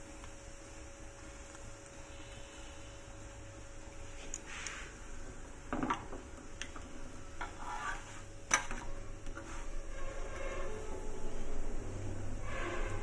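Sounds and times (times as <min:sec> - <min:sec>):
metal spatula scraping griddle: 0:07.4 - 0:11.6, 0:12.4 - 0:13.0.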